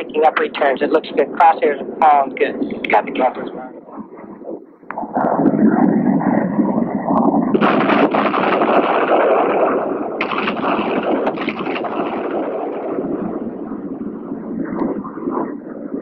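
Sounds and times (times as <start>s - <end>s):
bombs exploding: 5.0s - 14.1s.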